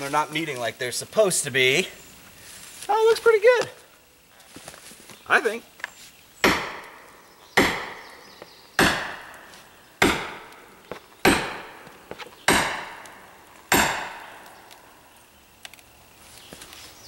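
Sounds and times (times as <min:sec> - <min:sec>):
sledgehammer striking steel wedge: 0:06.4 - 0:07.0, 0:07.6 - 0:08.0, 0:08.8 - 0:09.4, 0:10.0 - 0:10.5, 0:11.2 - 0:11.8, 0:12.5 - 0:14.4.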